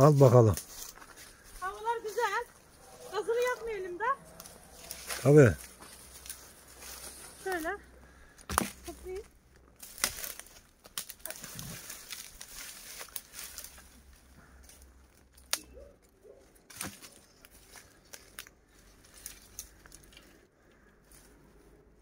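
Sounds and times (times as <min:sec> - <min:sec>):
light crackling rustle: 0:00.0 - 0:21.8
firewood sticks knocking: 0:08.4 - 0:12.3.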